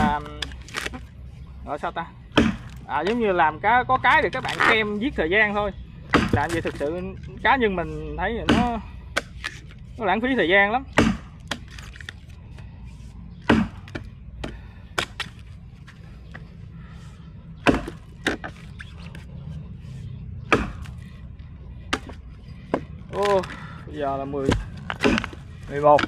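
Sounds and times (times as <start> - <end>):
axe chopping tree trunk: 0.0 - 1.0, 2.3 - 3.3, 6.1 - 6.9, 8.4 - 9.7, 10.9 - 11.8, 13.4 - 15.4, 17.6 - 18.6, 20.4 - 21.0, 21.9 - 23.6, 24.4 - 26.0.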